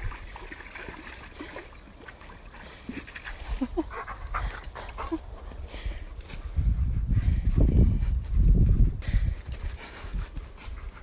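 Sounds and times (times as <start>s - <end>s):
dog panting: 3.8s - 6.1s.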